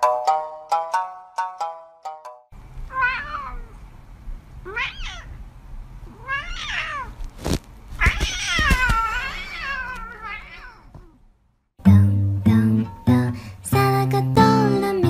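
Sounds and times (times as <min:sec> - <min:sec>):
cat meowing: 0:02.9 - 0:03.8, 0:04.6 - 0:05.4, 0:06.1 - 0:07.2, 0:08.0 - 0:11.2.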